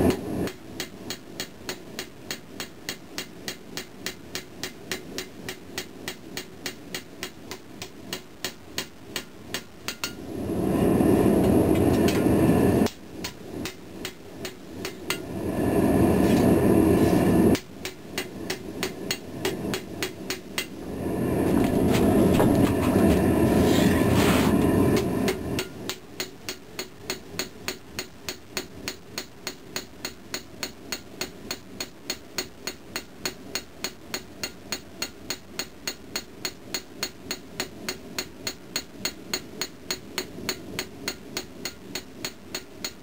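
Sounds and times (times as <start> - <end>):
hammer striking hot steel on anvil: 0.0 - 10.2, 11.4 - 15.3, 17.2 - 20.8, 24.9 - 43.0
loud steady rushing noise: 9.9 - 26.1.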